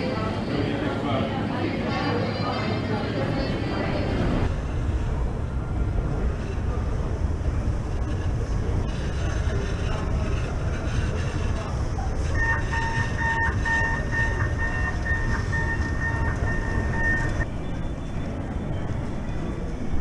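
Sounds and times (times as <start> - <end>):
hum of large hall: 0.0 - 20.0
escalator mechanical rumble: 2.9 - 20.0
electronic tone beeping: 12.4 - 19.4.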